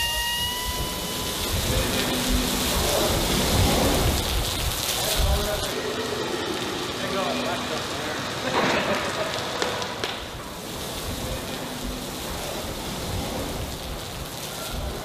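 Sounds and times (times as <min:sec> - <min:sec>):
water spattering and dripping: 0:00.0 - 0:15.0.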